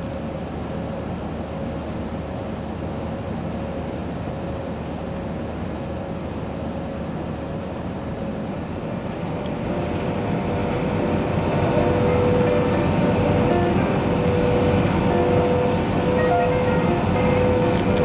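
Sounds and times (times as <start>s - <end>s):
jet engine and airflow roar: 0.0s - 18.0s.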